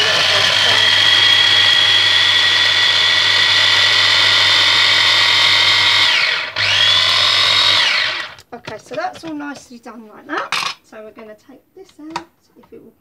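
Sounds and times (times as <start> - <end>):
electric chopper whining: 0.0 - 8.4.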